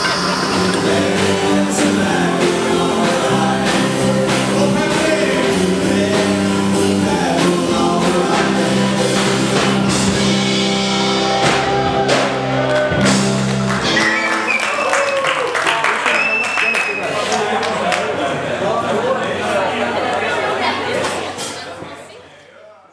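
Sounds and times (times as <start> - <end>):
rock band with singer: 0.0 - 16.8.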